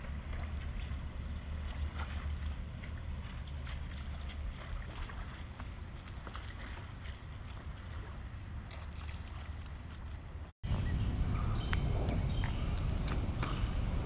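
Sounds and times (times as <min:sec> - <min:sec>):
wind buffeting microphone: 0:10.6 - 0:14.0.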